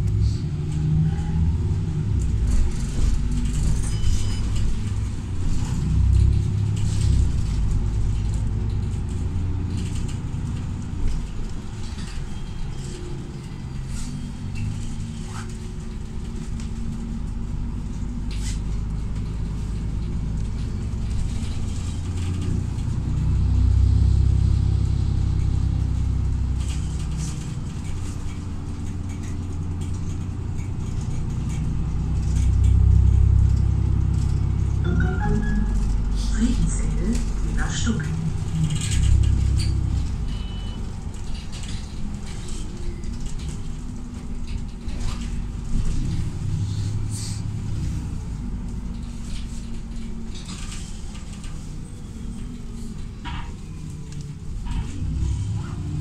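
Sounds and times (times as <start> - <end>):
bus engine and road rumble: 0.0 - 56.0
light clicks and rattles: 25.3 - 34.8, 36.4 - 46.6.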